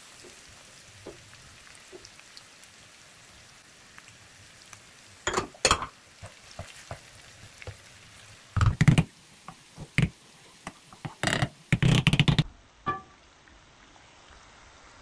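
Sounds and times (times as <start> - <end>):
faint sizzle: 0.0 - 15.0
wooden spoon scraping a pan: 6.2 - 7.9.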